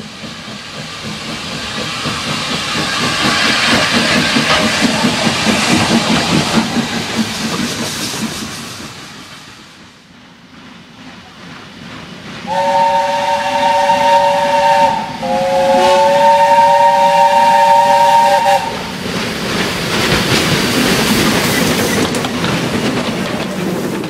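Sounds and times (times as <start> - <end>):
steam hissing: 0.0 - 24.0
train rumbling: 0.0 - 24.0
steam locomotive whistle: 12.5 - 18.9.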